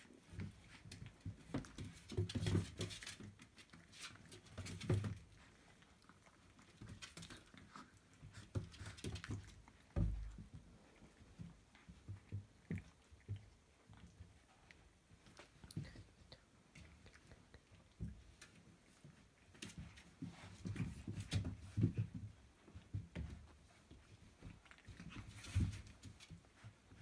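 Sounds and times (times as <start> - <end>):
puppies licking wet smacking: 5.2 - 9.9, 10.8 - 19.1.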